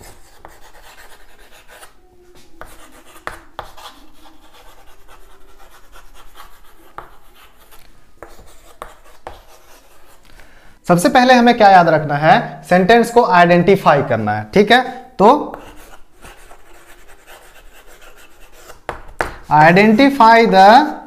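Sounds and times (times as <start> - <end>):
chalk tapping board: 0.0 - 10.2, 15.5 - 20.1
chalk scratching on chalkboard: 0.0 - 10.3, 15.5 - 20.1.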